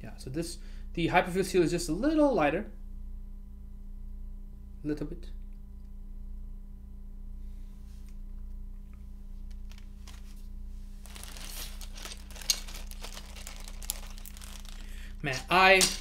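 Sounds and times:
low steady hum: 0.0s - 16.0s
plastic packaging crinkling: 9.5s - 10.4s, 11.0s - 16.0s.

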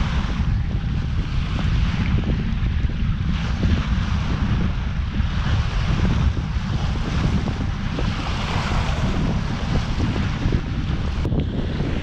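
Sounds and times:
water rushing along boat hull: 0.0s - 12.0s
wind buffeting microphone: 0.0s - 12.0s.

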